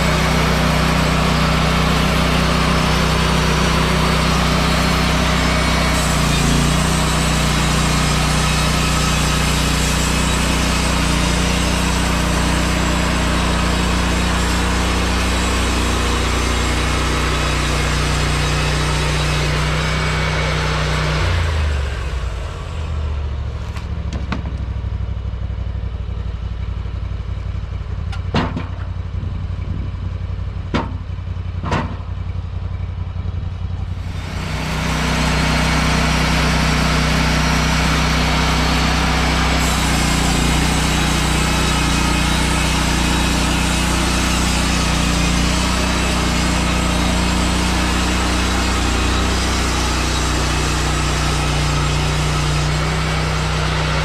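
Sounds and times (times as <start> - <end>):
band saw cutting log: 0.0 - 23.0, 33.8 - 54.0
petrol engine idling: 0.0 - 54.0
sharp knocks: 30.7 - 31.0, 31.6 - 32.0.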